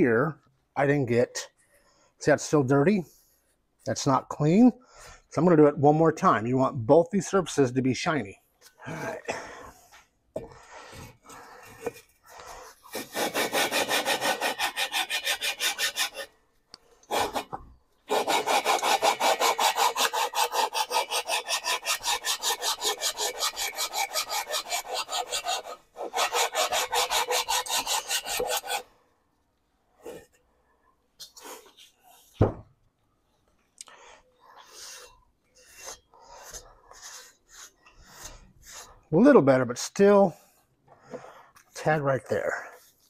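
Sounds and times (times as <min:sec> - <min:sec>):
gritty scraping rasp: 0:11.3 - 0:16.3, 0:17.0 - 0:28.9, 0:34.4 - 0:39.1.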